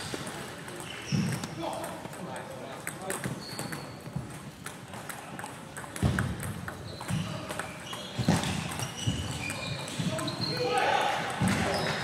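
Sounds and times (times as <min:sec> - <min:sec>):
shoes squeaking on floor: 0:00.0 - 0:01.8, 0:03.0 - 0:05.0, 0:06.0 - 0:12.0
table tennis ball clicking: 0:00.6 - 0:08.0.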